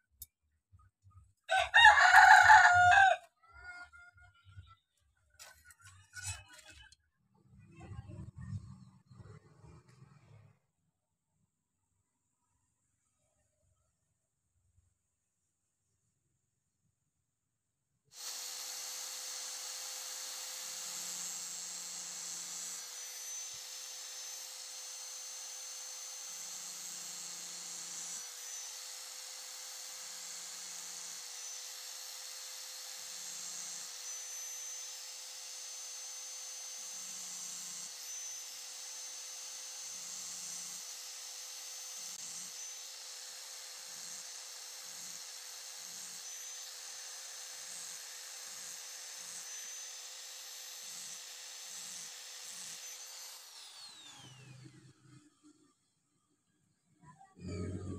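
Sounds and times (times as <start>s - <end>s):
disc grinding steel: 5.4s - 6.9s, 57.4s - 57.9s
angle grinder whining: 18.1s - 55.8s, 57.2s - 57.9s.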